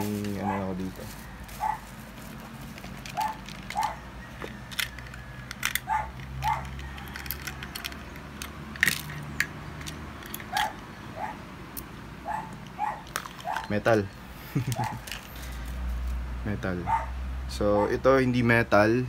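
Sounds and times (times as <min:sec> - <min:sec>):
faint dog barking: 0:00.4 - 0:01.0, 0:01.6 - 0:01.8, 0:12.2 - 0:13.7, 0:16.8 - 0:17.2, 0:17.8 - 0:18.0.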